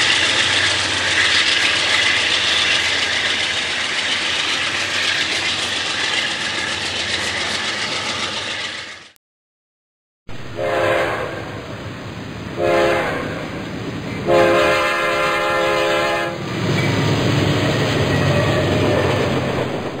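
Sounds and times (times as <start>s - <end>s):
low train rumble: 0.0s - 9.2s, 10.3s - 20.0s
locomotive air horn blasts: 10.4s - 11.7s, 12.6s - 13.6s, 14.2s - 16.4s.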